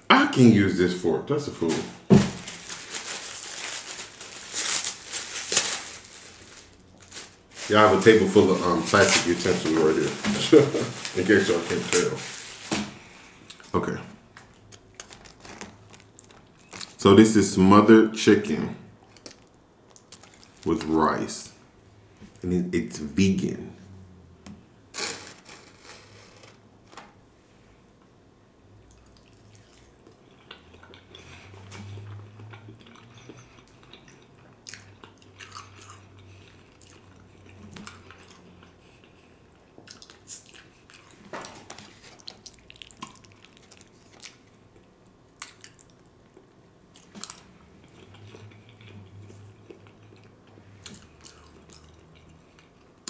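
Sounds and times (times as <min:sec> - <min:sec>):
man chewing: 0:19.0 - 0:20.7, 0:28.8 - 0:53.0.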